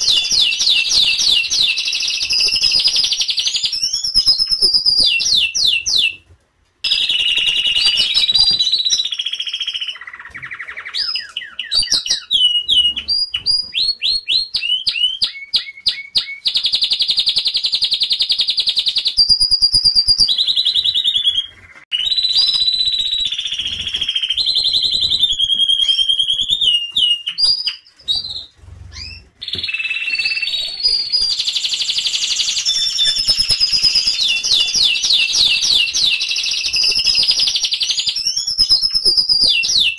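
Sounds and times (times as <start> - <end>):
canaries singing trills: 0.0 - 39.9.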